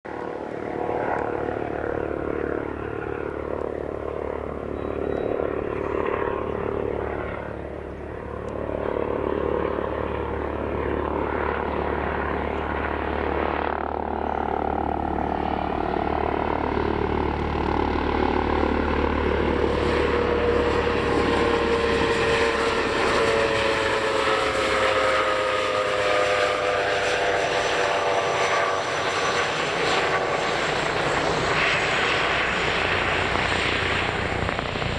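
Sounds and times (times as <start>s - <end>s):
helicopter approaching with whine: 0.1s - 34.9s
propeller plane engine drone: 0.1s - 34.9s.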